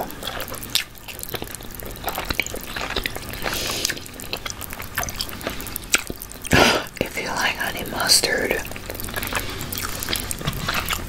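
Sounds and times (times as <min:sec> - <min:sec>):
close chewing with wet mouth clicks: 0:00.0 - 0:11.0.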